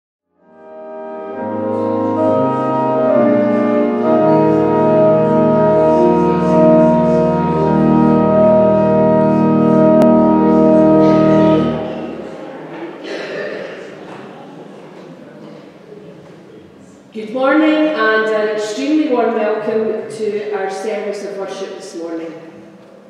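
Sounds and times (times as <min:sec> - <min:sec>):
organ chords: 0:00.3 - 0:12.8.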